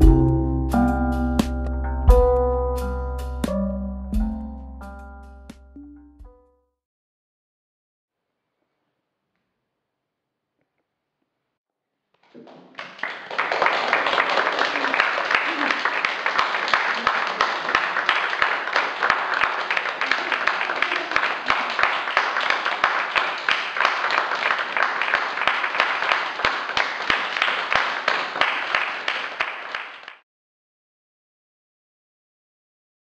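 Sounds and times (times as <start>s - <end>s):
audience applauding: 12.2s - 30.2s.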